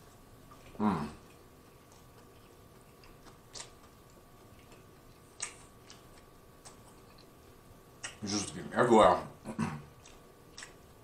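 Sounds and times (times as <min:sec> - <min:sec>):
wet mouth clicks chewing: 0:00.5 - 0:07.4, 0:08.0 - 0:08.2, 0:09.9 - 0:11.0.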